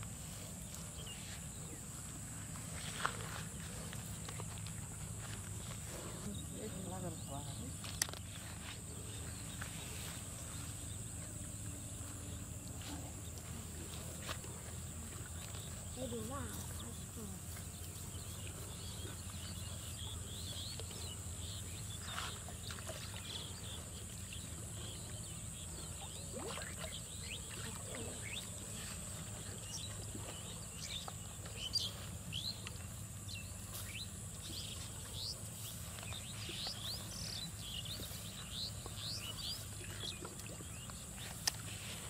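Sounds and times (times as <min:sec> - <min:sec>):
small birds chirping: 0:00.0 - 0:42.0.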